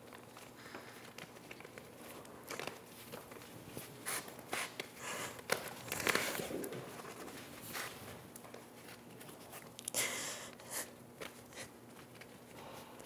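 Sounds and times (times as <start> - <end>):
rustling and shuffling on floor: 0.0 - 9.8, 11.1 - 13.0.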